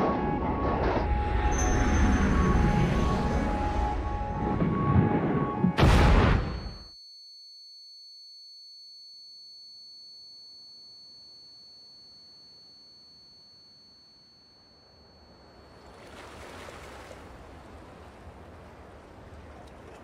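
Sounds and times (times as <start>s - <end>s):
high-pitched ringing tone: 0.0s - 5.0s, 6.3s - 16.6s.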